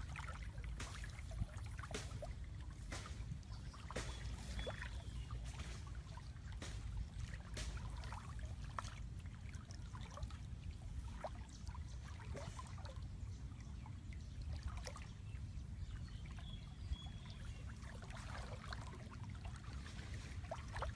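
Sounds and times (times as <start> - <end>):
stream water splashing: 0.0 - 20.9.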